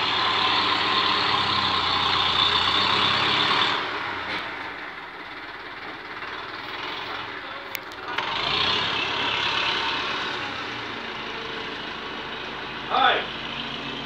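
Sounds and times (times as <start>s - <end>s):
tractor diesel engine running: 0.0s - 14.0s.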